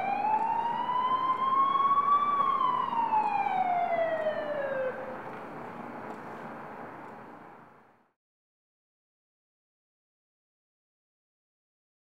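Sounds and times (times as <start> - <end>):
emergency siren wailing: 0.0 - 5.5.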